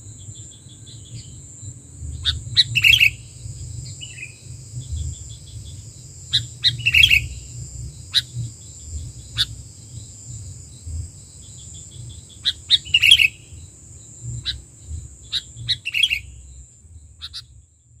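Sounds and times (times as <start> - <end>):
bird chirps: 0.2 - 17.6
low rumble: 1.6 - 12.2, 14.1 - 17.8.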